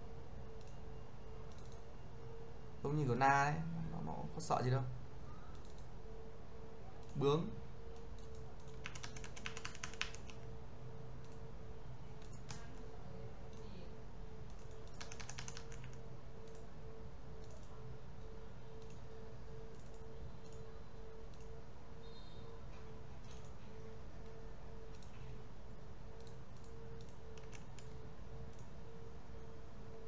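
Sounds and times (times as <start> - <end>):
low hum: 0.0 - 8.7
keyboard and mouse clicking: 1.4 - 1.8, 5.5 - 5.9, 7.9 - 10.5, 11.2 - 11.5, 12.1 - 12.9, 13.5 - 13.7, 14.4 - 16.7, 17.4 - 19.1, 19.7 - 20.7, 21.3 - 21.6, 23.2 - 23.6, 24.2 - 25.3, 26.2 - 28.7.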